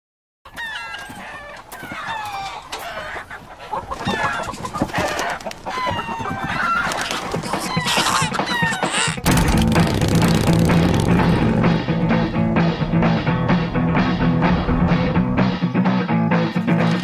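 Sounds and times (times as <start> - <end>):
chickens clucking: 0.5 - 9.3.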